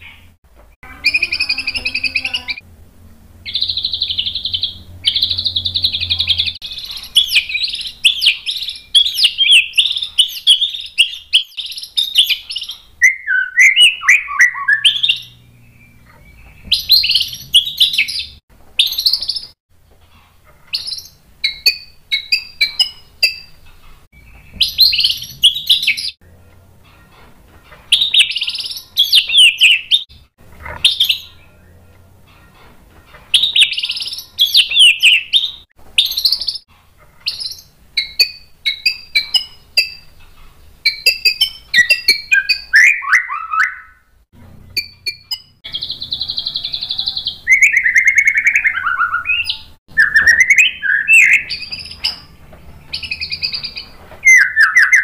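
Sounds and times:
songbird singing varied phrases: 0.9 - 2.6, 3.4 - 19.6, 24.2 - 26.2, 27.9 - 31.8, 33.4 - 36.6, 44.7 - 52.3.

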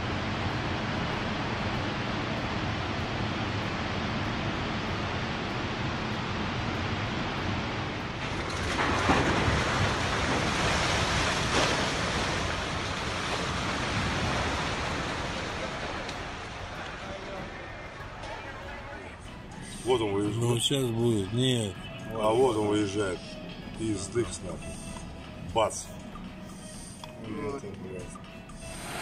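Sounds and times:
landslide rushing: 3.3 - 20.7.

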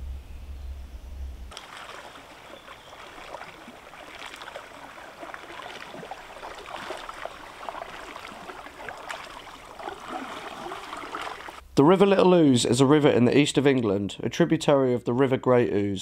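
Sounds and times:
river water babbling: 1.5 - 11.6
small water splashes: 1.5 - 11.6.

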